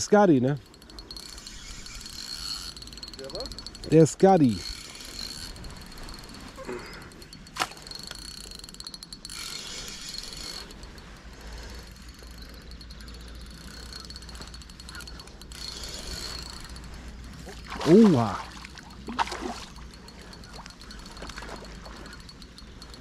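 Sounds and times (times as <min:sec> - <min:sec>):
fishing reel gears ticking: 0:00.0 - 0:23.0
sharp reel click: 0:00.6 - 0:06.6, 0:07.2 - 0:17.0.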